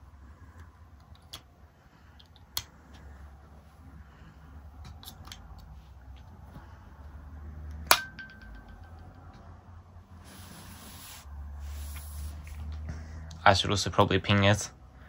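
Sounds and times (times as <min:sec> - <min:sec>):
earbuds clicking into case: 0:04.8 - 0:06.4.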